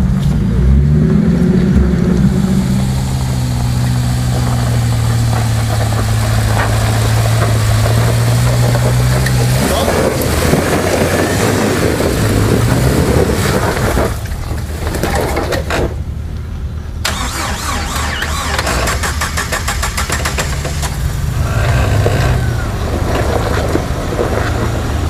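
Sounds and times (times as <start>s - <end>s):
car engine at low revs: 0.0s - 15.1s, 18.2s - 25.0s.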